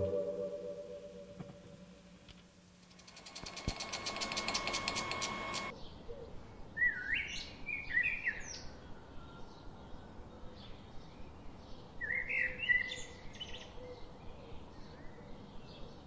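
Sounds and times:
steady hum: 0.0s - 5.7s
rapid mechanical clicking: 2.8s - 5.7s.

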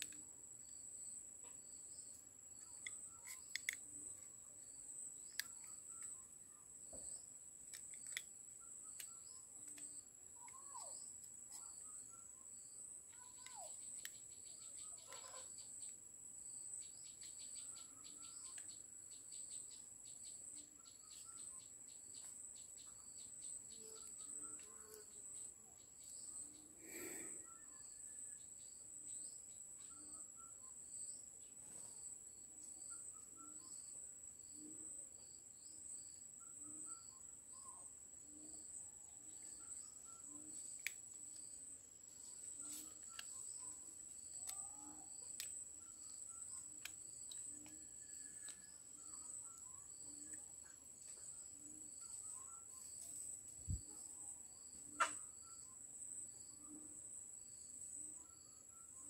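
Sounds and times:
high insect drone: 0.0s - 37.7s
cricket-like chirps: 0.0s - 59.0s.

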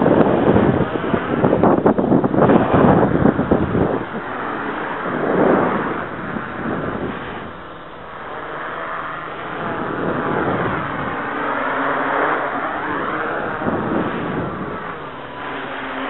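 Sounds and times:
quadcopter propellers whirring: 0.0s - 16.0s.

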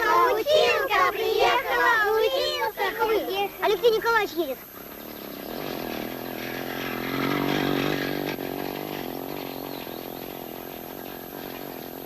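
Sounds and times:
vehicle engine passing by: 4.6s - 12.0s.

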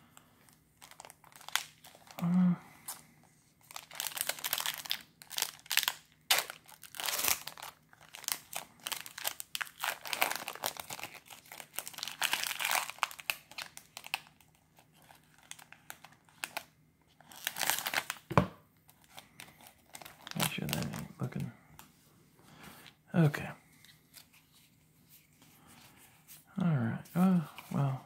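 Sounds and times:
foil wrapper crinkling: 0.8s - 2.2s, 3.6s - 18.3s, 19.0s - 21.1s
foil pack tearing open: 3.7s - 14.4s, 17.3s - 18.2s.

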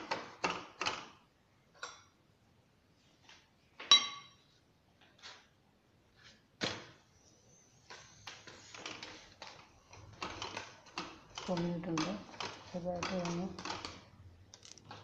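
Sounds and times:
utensils clinking on cookware: 3.8s - 4.4s
small clatters and rustles: 7.8s - 15.0s.

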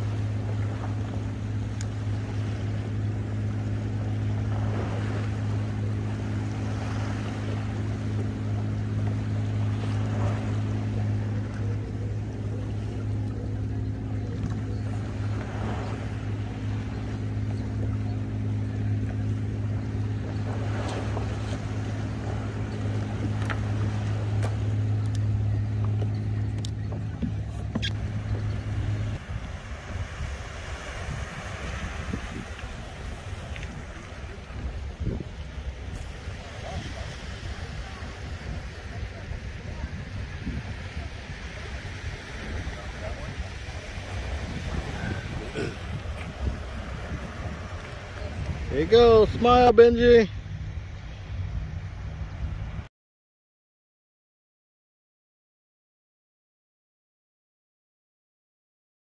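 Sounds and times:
boat motor hum: 0.0s - 52.9s
water: 0.0s - 52.9s
wind noise: 27.0s - 49.8s.

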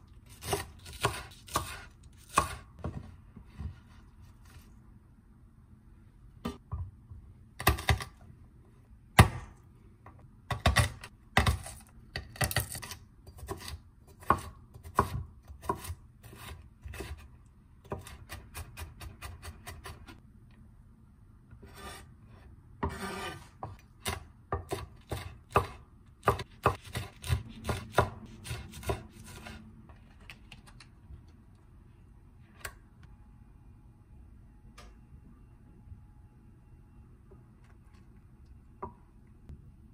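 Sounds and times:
knife chopping on wooden board: 13.4s - 17.2s, 22.8s - 29.6s.

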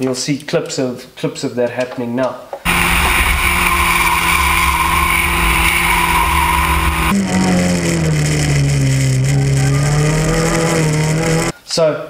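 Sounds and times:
wind and road noise: 2.7s - 9.4s
race car engine at high revs: 2.7s - 11.5s.

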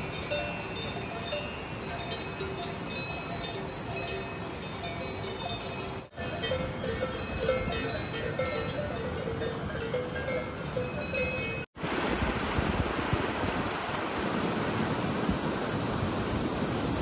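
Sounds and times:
cowbells clanking: 0.0s - 11.7s
river rushing: 0.0s - 17.0s.

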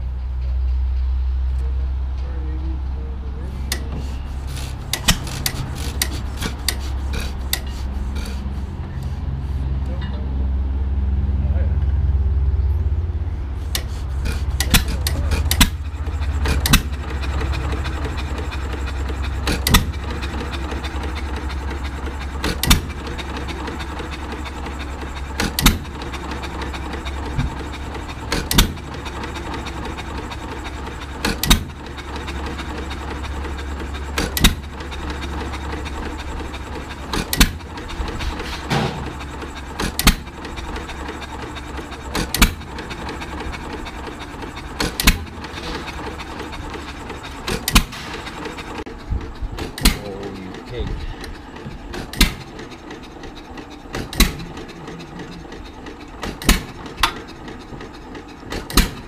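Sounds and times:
stationary engine idling: 0.0s - 59.0s
engine firing bang: 38.2s - 40.3s.

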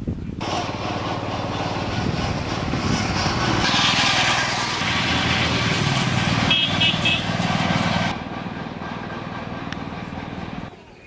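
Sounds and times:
diesel tractor engine passing: 0.4s - 10.9s
horn toots: 6.3s - 7.5s.

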